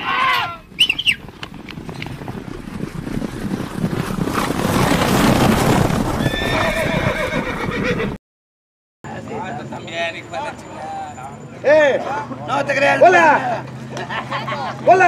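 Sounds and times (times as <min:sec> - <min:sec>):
galloping horse hooves: 0:00.0 - 0:08.2.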